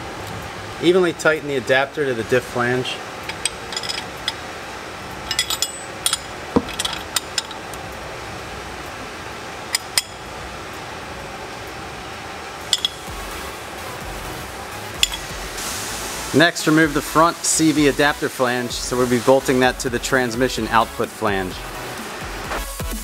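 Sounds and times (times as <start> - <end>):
low background hum: 0.0 - 17.3
wrench clinking on bolts: 3.2 - 4.5, 5.2 - 7.6, 9.7 - 10.2, 12.7 - 13.1, 15.0 - 15.3.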